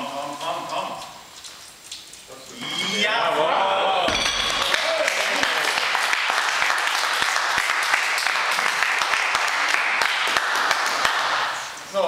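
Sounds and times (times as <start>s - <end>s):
small audience applauding: 4.5s - 11.7s.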